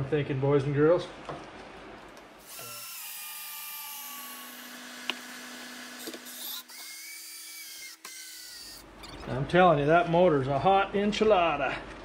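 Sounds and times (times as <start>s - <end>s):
cordless drill driving screw: 2.4s - 8.8s.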